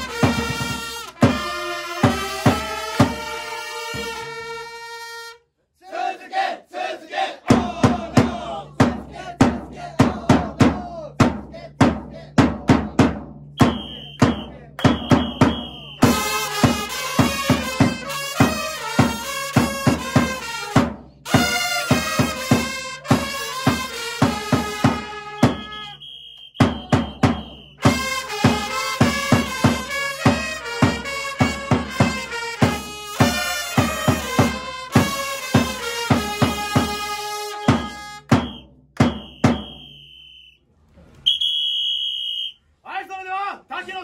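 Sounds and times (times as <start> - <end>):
marching drum beat: 0.0 - 4.7, 7.4 - 40.2
trumpets playing melody: 0.0 - 5.4, 13.6 - 38.6.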